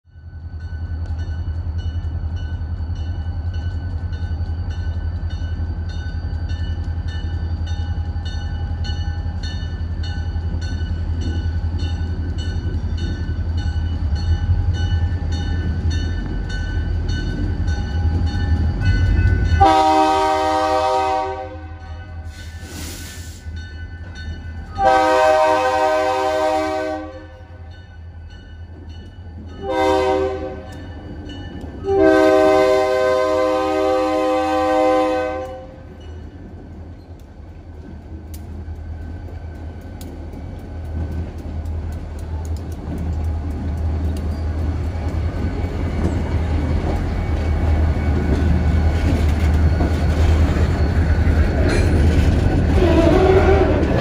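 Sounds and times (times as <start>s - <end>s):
diesel locomotives rumbling: 0.1s - 54.0s
locomotive air horn blasts: 19.6s - 22.4s, 24.8s - 27.6s, 29.6s - 30.8s, 31.9s - 35.9s, 52.8s - 54.0s.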